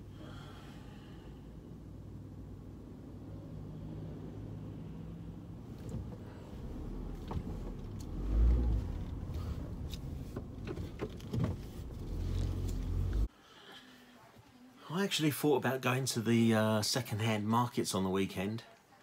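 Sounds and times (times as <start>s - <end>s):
engine and road rumble: 0.0s - 13.3s.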